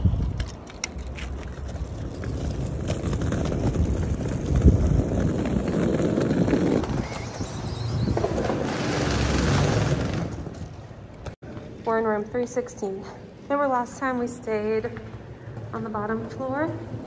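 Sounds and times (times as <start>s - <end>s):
suitcase wheels rumbling on asphalt: 0.0s - 11.4s.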